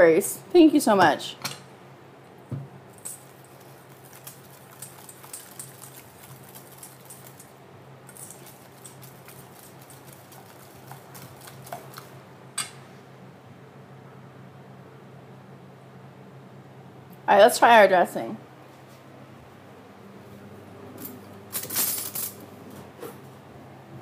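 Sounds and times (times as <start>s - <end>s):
whisk clicking in metal bowl: 3.9s - 7.5s, 8.1s - 12.1s.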